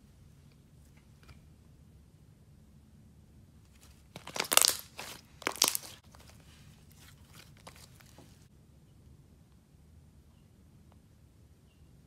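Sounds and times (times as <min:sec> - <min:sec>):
slime crackling and popping: 0:04.1 - 0:06.0.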